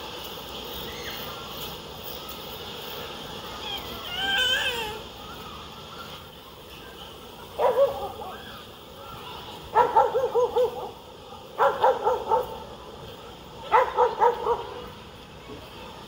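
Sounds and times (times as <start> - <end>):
dog barking: 7.6 - 8.2, 9.7 - 11.0, 11.6 - 12.6, 13.7 - 14.8.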